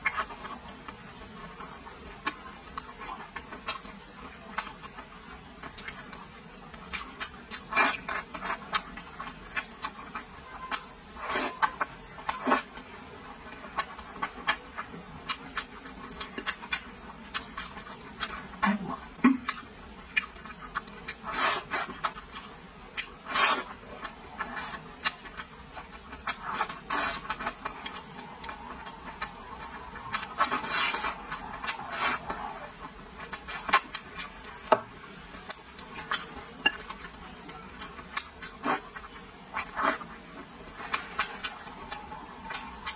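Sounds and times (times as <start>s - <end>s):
chewing meat off bone: 13.4s - 34.6s.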